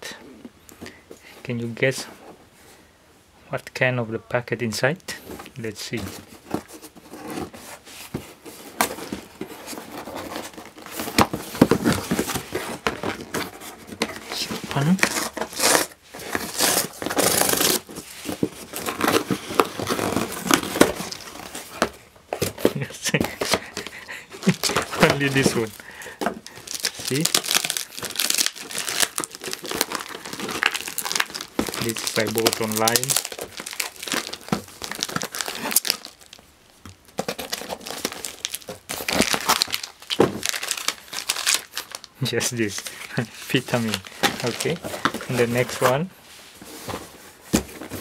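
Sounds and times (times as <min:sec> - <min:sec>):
plastic wrapping crinkling: 0:06.2 - 0:46.1
cardboard ripping: 0:08.5 - 0:36.4, 0:37.2 - 0:42.0, 0:43.3 - 0:46.0.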